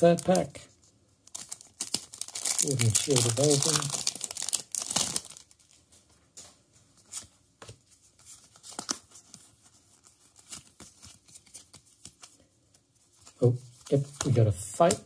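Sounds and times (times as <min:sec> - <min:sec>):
foil wrapper crinkling and tearing: 0:01.2 - 0:05.8.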